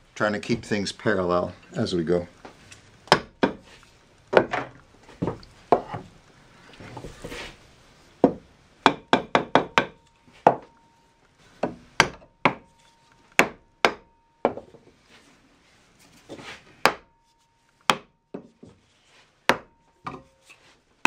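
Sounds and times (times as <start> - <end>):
wooden mallet knocking on wood block: 8.2 - 10.7, 11.6 - 12.7.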